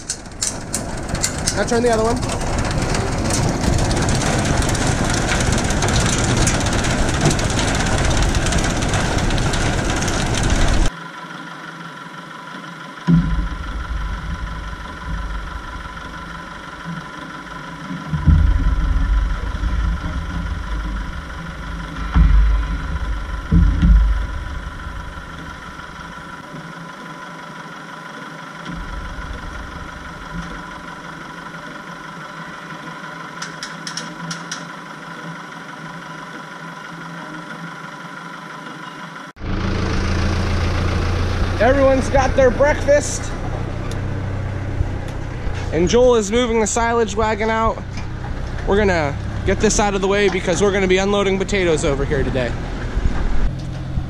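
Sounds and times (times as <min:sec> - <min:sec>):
forage wagon conveyor chain running: 0:00.0 - 0:11.0, 0:11.8 - 0:54.0
tractor idling: 0:00.0 - 0:54.0
low thumps: 0:13.1 - 0:26.4, 0:28.7 - 0:31.6, 0:41.5 - 0:54.0.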